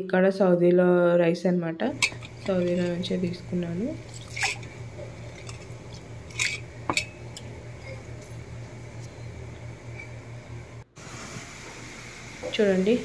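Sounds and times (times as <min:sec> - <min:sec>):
steady low hum: 0:01.9 - 0:13.0
splashes and clinks against pot: 0:02.0 - 0:03.0, 0:04.0 - 0:07.5.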